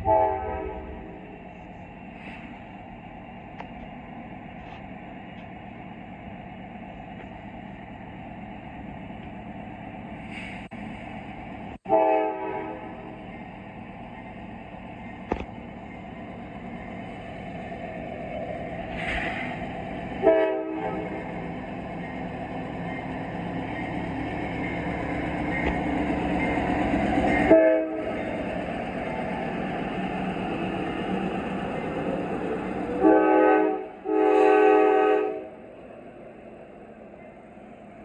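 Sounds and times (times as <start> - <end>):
train horn blasts: 0.0 - 1.3, 11.9 - 13.2, 20.2 - 21.3, 27.4 - 28.2, 33.0 - 35.6
locomotive engine rumble: 0.0 - 38.0.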